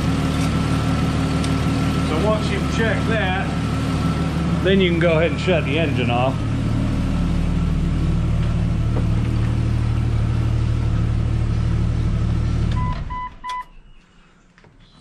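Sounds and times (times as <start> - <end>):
car engine idling: 0.0 - 13.3
short electronic beeps: 12.8 - 13.8.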